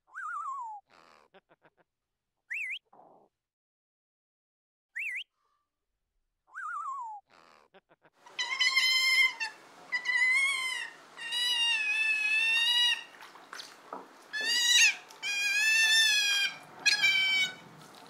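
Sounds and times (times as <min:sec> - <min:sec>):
otters squealing: 0:07.6 - 0:18.0.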